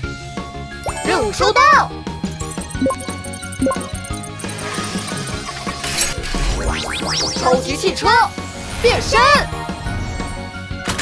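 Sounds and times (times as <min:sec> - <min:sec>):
cartoon background music: 0:00.0 - 0:11.0.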